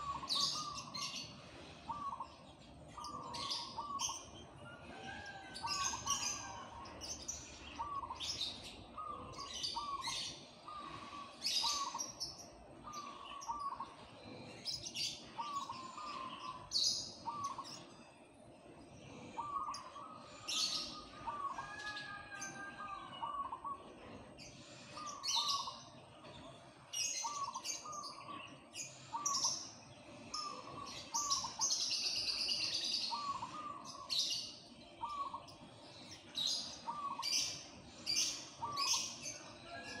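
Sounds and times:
small birds chirping: 0.0 - 40.0
dove cooing: 1.8 - 2.3, 3.0 - 7.0, 7.7 - 17.9, 19.1 - 25.8, 30.2 - 34.4, 35.0 - 35.5, 36.4 - 40.0.

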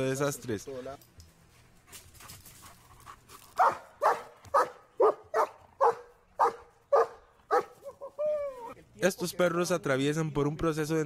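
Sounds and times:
dog barking: 3.6 - 7.9.

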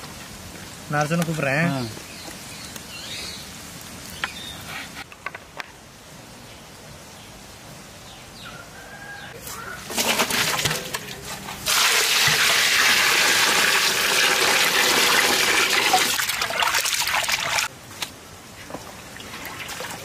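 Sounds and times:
water pouring into a pot: 11.6 - 17.7.

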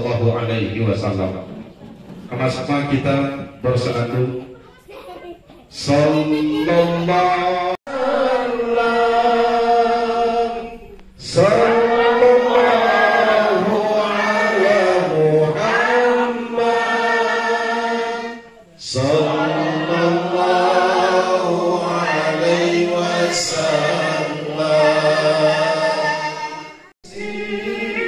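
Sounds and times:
group devotional chanting: 5.7 - 28.0.

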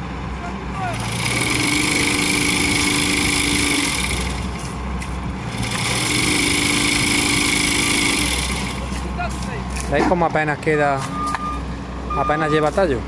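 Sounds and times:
tree shaker engine running hard: 0.4 - 9.8.

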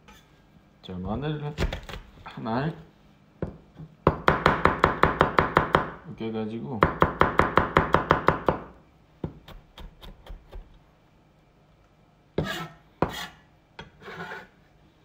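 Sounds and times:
knife chopping on wooden board: 12.4 - 13.3
knife scraping across board: 12.4 - 14.6.

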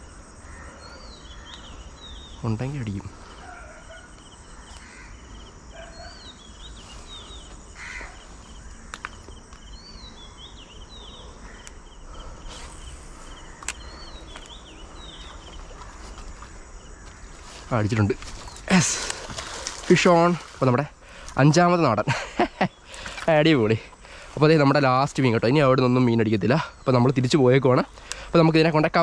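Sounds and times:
insects trilling: 0.0 - 29.0
small birds chirping: 0.0 - 29.0
sharp clicks: 13.5 - 14.6, 27.9 - 28.3.

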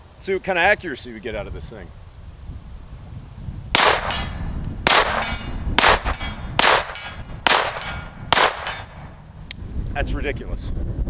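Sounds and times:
pistol shots: 3.8 - 9.1
metallic ring of steel target: 3.8 - 9.2.

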